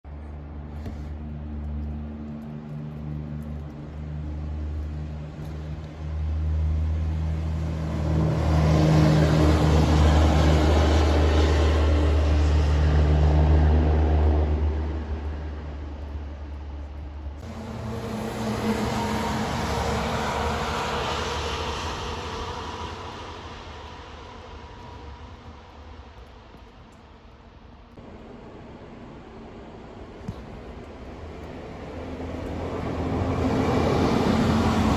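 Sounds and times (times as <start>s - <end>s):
trucks passing by: 0.1s - 34.9s.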